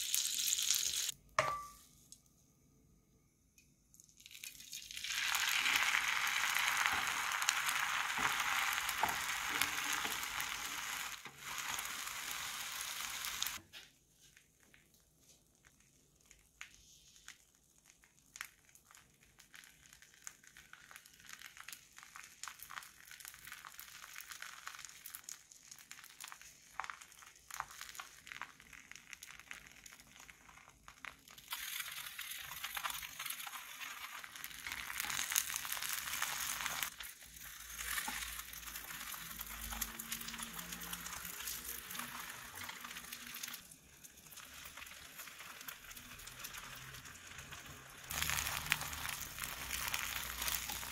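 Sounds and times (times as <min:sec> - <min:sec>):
egg sizzling in frying pan: 0:00.0 - 0:01.7, 0:03.9 - 0:13.6, 0:14.4 - 0:50.9
soft crackles: 0:03.9 - 0:50.9.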